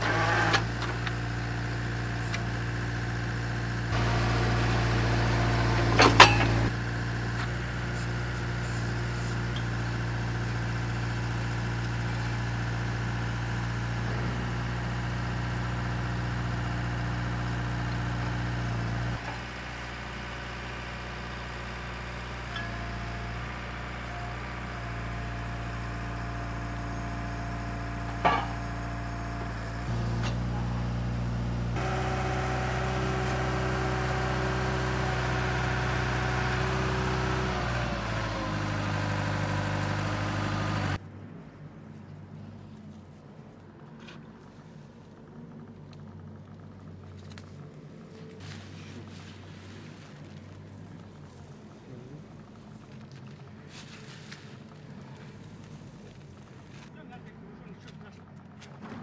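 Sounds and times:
drilling rig engine running: 0:00.0 - 0:41.0.

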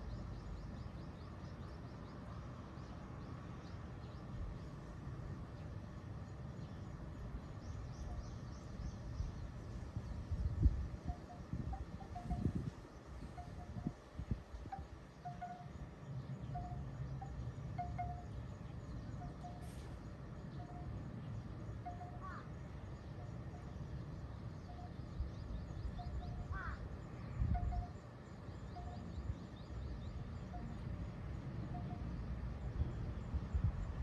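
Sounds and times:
low wind rumble: 0:00.0 - 0:34.0
bird chirps: 0:11.0 - 0:13.9, 0:14.5 - 0:30.9
faint high bird twittering: 0:21.8 - 0:28.0.

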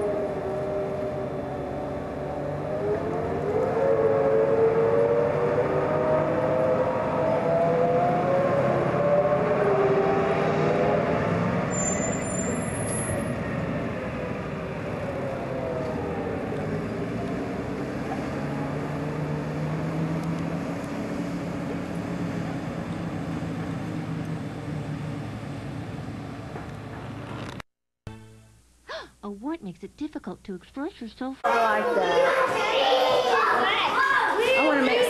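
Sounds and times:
whining tone sliding down: 0:00.0 - 0:13.6
truck engine pulling away: 0:00.0 - 0:27.6.

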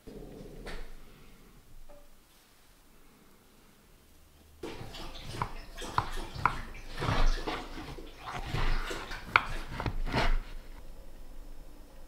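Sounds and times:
knife sawing through cake: 0:04.8 - 0:10.8
knife tapping wooden board: 0:05.3 - 0:07.3, 0:09.2 - 0:10.4.

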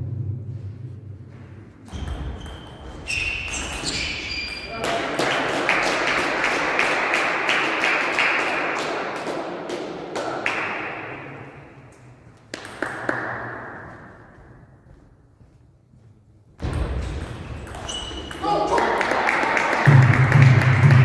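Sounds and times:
table tennis ball bouncing: 0:12.6 - 0:13.5, 0:16.7 - 0:19.2.

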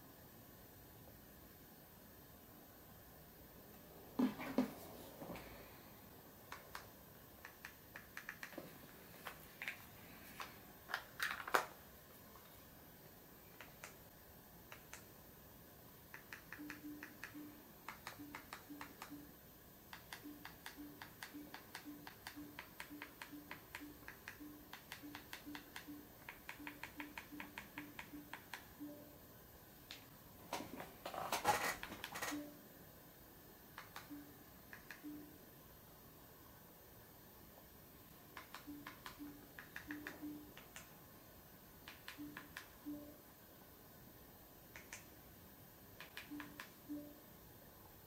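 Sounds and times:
short low beeps: 0:16.6 - 0:17.6, 0:20.2 - 0:29.2, 0:35.0 - 0:35.4, 0:42.2 - 0:43.2, 0:46.3 - 0:47.2.

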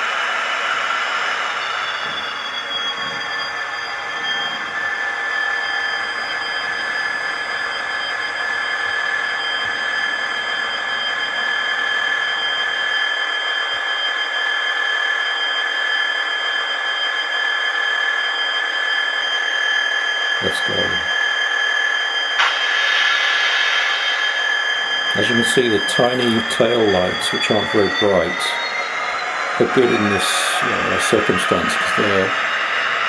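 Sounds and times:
model train high-pitched whine: 0:00.0 - 0:33.0
hiss: 0:22.4 - 0:24.4.

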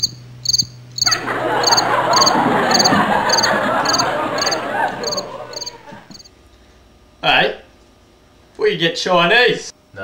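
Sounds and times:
cricket chirping: 0:00.0 - 0:06.3
frogs croaking: 0:00.0 - 0:06.3.

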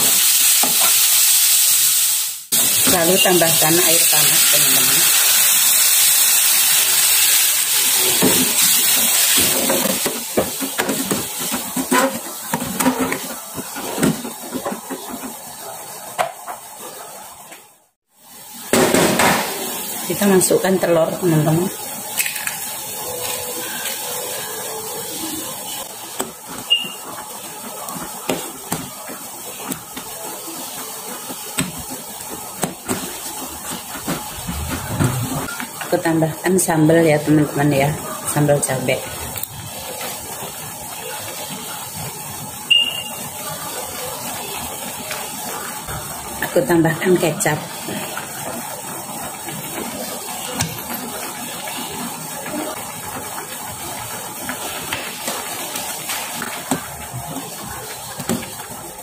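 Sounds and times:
boiling liquid hissing: 0:00.0 - 0:59.0
soup boiling with bubbling hiss: 0:47.4 - 0:59.0.

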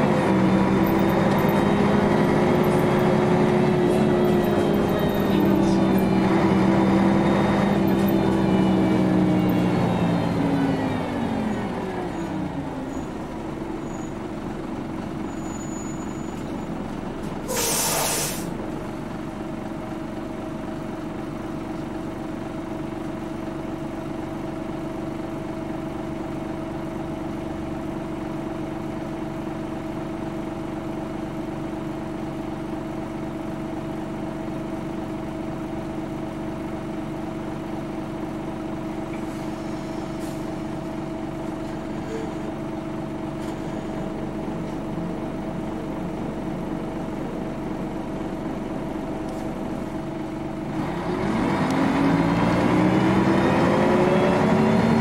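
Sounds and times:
bus diesel engine running: 0:00.0 - 0:55.0
compressed air hiss: 0:17.5 - 0:18.5.

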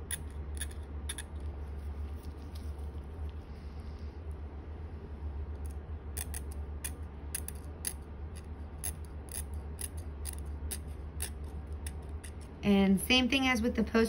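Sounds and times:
dental tool scraping plastic teeth: 0:00.0 - 0:01.4, 0:06.2 - 0:12.5.

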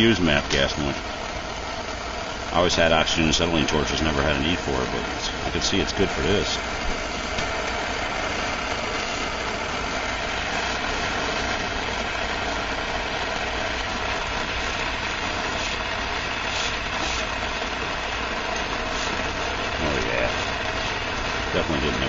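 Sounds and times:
gas torch hissing: 0:00.0 - 0:22.0.

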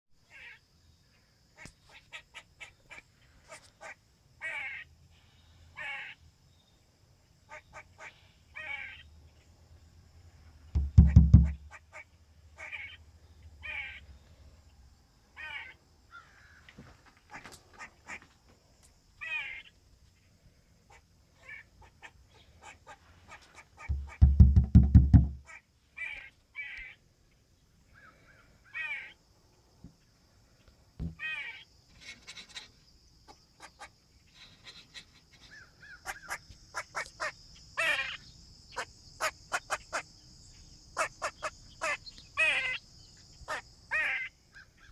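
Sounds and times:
squirrel barking chirps: 0:10.8 - 0:13.0, 0:34.7 - 0:38.2, 0:41.0 - 0:42.8.

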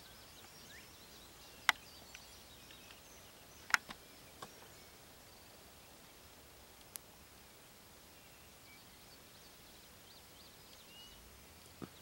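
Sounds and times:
songbirds chirping: 0:00.0 - 0:12.0
sharp clicks: 0:03.7 - 0:04.0.

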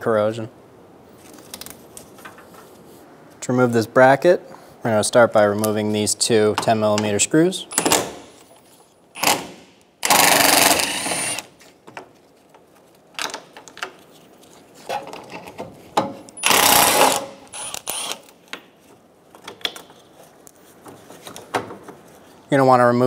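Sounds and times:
cordless power ratchet spinning: 0:10.0 - 0:11.5, 0:16.4 - 0:18.2.

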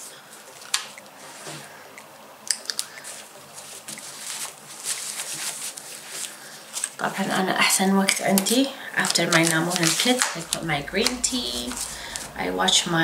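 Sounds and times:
diaper rustling and crinkling: 0:03.0 - 0:07.4, 0:09.0 - 0:10.5.

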